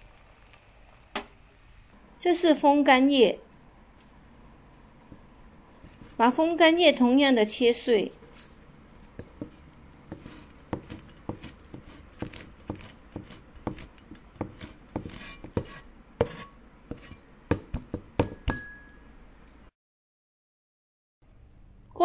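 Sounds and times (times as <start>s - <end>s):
cleaver chopping on cutting board: 9.2s - 18.5s.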